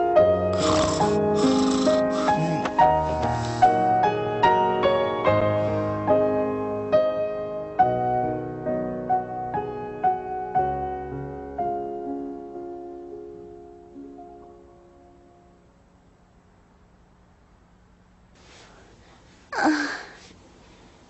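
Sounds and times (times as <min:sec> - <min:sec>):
slow piano melody: 0:00.0 - 0:16.3.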